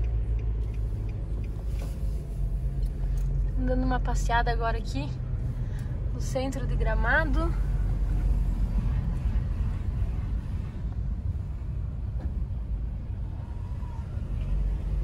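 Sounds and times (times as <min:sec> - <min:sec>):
car driving low rumble: 0:00.0 - 0:15.0.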